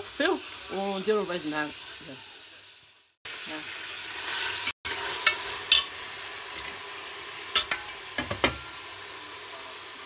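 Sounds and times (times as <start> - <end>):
chicken sizzling in oil: 0.0 - 10.0
metal spoon knocking on pot: 7.6 - 8.7.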